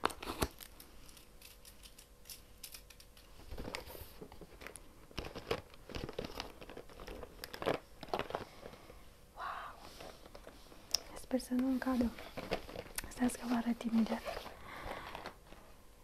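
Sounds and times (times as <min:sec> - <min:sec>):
packaging tearing and crinkling: 0:00.0 - 0:08.8.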